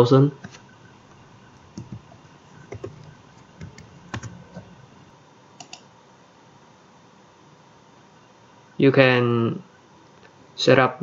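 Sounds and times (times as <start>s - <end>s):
computer mouse clicking: 0.4s - 4.9s, 5.6s - 5.9s.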